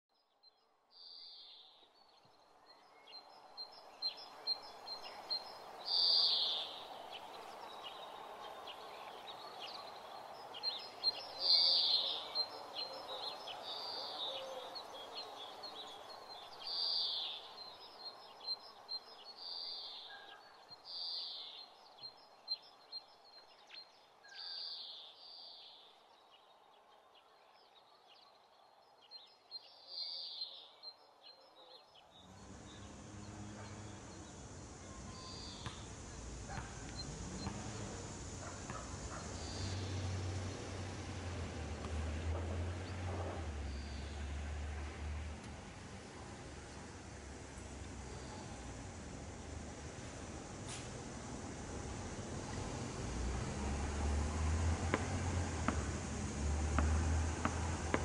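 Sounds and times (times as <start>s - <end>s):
steady background noise: 32.1s - 58.0s
birds calling: 32.2s - 41.4s.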